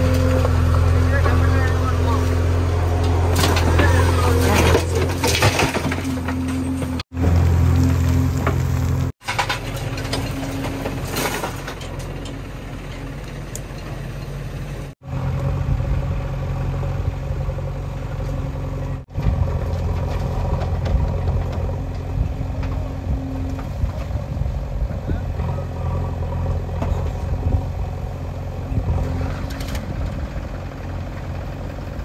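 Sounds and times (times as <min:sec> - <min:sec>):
diesel engines running: 0:00.0 - 0:32.0
soil and stones clattering: 0:02.8 - 0:14.3.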